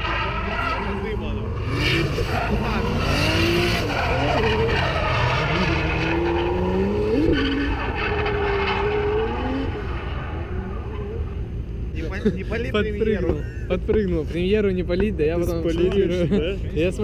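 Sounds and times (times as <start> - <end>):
tyres skidding: 0.0 - 14.4
car engines revving: 0.0 - 17.0.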